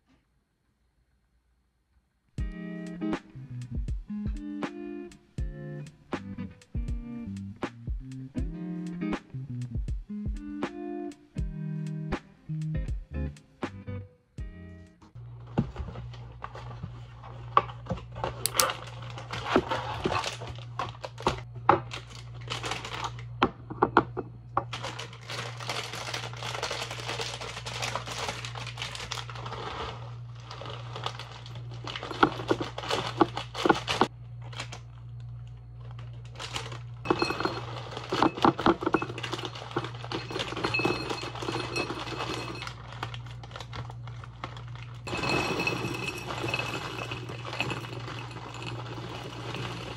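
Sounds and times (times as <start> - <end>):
plastic bag crinkling: 15.3 - 23.2, 24.7 - 49.9
granola poured into glass bottle: 45.1 - 49.9.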